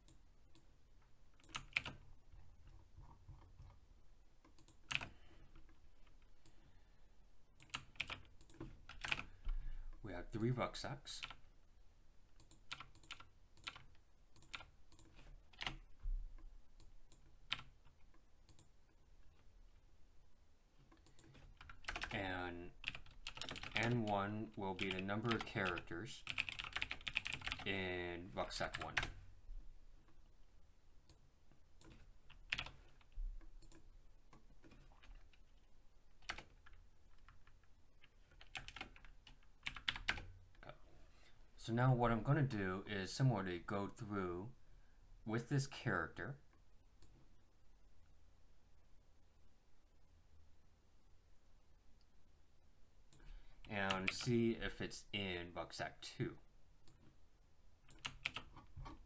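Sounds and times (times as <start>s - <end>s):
faint keyboard typing: 0.0s - 3.8s, 4.4s - 6.7s, 7.6s - 10.0s, 11.1s - 11.5s, 12.3s - 19.8s, 20.8s - 29.2s, 31.0s - 40.8s, 53.1s - 54.6s, 57.8s - 59.0s.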